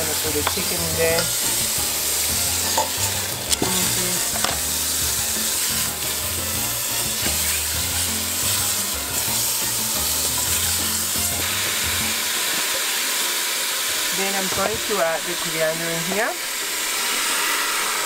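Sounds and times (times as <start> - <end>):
meat sizzling in hot oil: 0.0 - 18.0.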